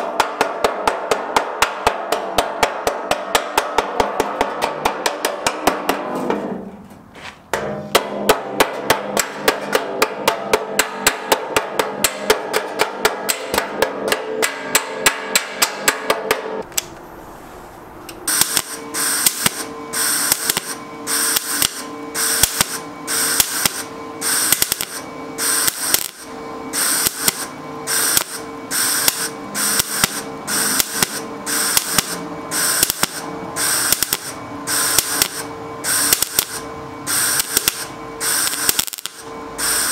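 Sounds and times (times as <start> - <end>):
hammer beating sheet steel: 0.0 - 16.7, 18.2 - 39.9
welder crackling: 18.0 - 39.9.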